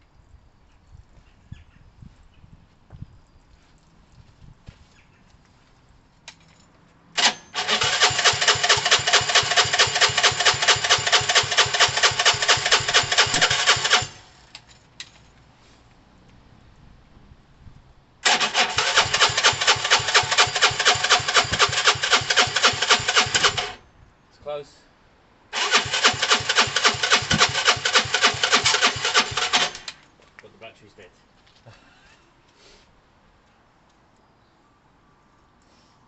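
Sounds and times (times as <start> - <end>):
electric starter cranking engine: 7.2 - 14.3, 18.2 - 23.8, 25.5 - 30.0.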